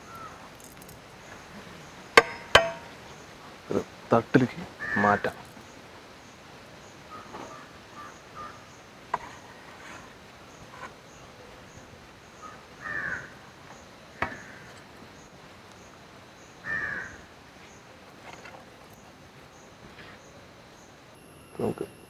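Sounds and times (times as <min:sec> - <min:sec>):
crow cawing: 0:00.0 - 0:00.4, 0:04.8 - 0:05.3, 0:07.1 - 0:08.6, 0:12.4 - 0:13.4, 0:14.2 - 0:14.8, 0:16.6 - 0:17.2
ladle knocking on metal tray: 0:02.2 - 0:02.9.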